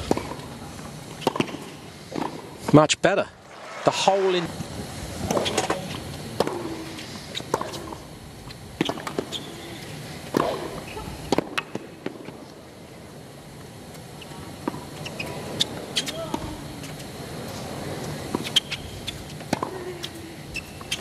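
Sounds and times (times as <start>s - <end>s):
stadium crowd hum: 0.0s - 20.5s
tennis ball bouncing: 1.1s - 2.7s, 6.4s - 8.0s
tennis ball struck with rackets: 1.2s - 2.5s, 6.4s - 6.9s.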